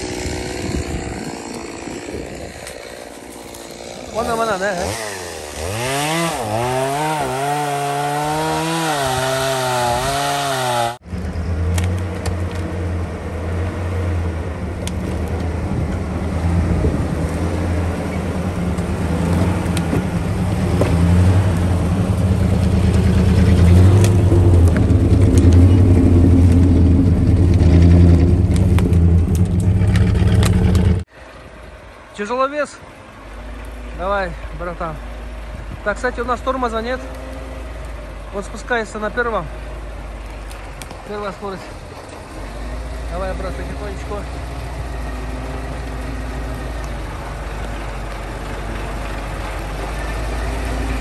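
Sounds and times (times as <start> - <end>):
chainsaw running: 0.0 - 11.0
truck engine droning: 0.0 - 51.0.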